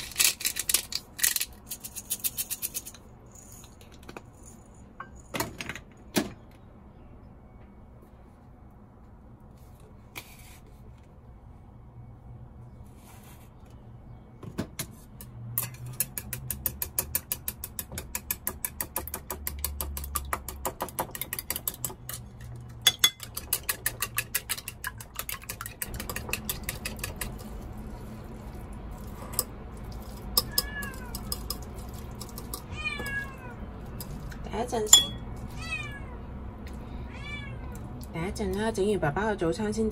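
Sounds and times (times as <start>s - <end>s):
chopsticks whisking eggs in bowl: 16.0s - 32.7s, 33.9s - 34.4s
cat meowing: 30.4s - 31.3s, 32.6s - 33.6s, 35.5s - 36.2s, 37.0s - 37.9s.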